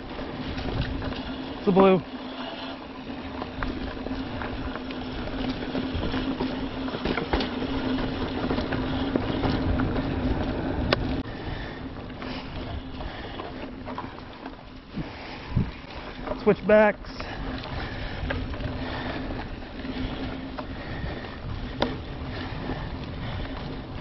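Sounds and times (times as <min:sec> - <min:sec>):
bike clicking and rattling: 0:00.0 - 0:24.0
bike tyres rolling on dirt: 0:00.0 - 0:24.0
wind noise on microphone: 0:00.3 - 0:01.4, 0:14.9 - 0:15.9.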